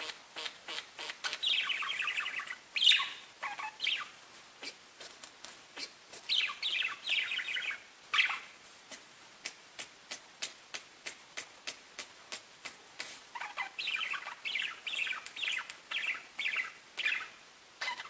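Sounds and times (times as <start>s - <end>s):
budgies chattering warble: 0.0s - 4.8s, 5.8s - 8.5s, 13.0s - 18.0s
short single budgie chirps: 13.3s - 18.0s.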